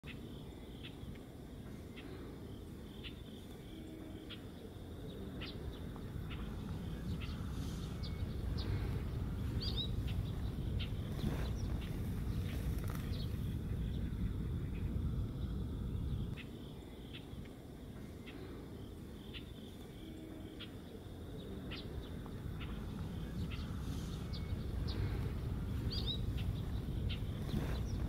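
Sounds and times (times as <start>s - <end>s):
steady low rumble: 0.0s - 28.0s
songbird chirping and whistling: 2.8s - 17.6s, 21.6s - 28.0s.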